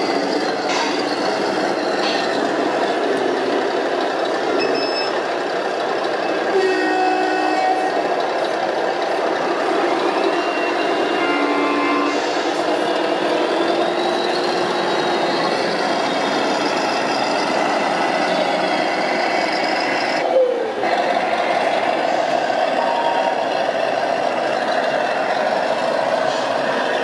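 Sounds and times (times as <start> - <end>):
simulated truck engine running: 0.0 - 6.5, 12.1 - 27.0
reversing beeps: 4.6 - 5.2.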